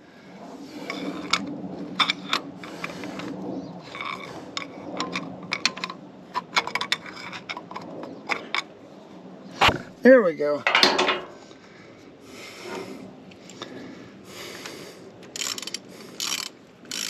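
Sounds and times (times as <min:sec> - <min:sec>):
small metal knocks: 0:10.6 - 0:11.4
hand ratchet clicking: 0:15.3 - 0:17.0.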